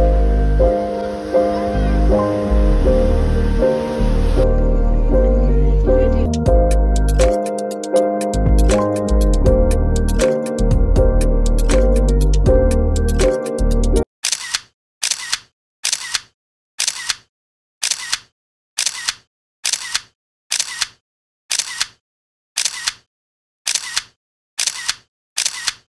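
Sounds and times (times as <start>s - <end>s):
camera shutter double click: 14.2s - 17.2s, 17.8s - 22.0s, 22.6s - 23.0s, 23.7s - 25.9s.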